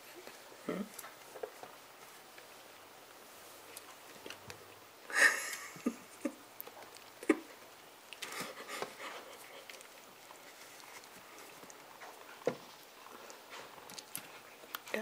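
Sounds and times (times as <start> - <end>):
cats breathy puffs: 8.2 - 11.7.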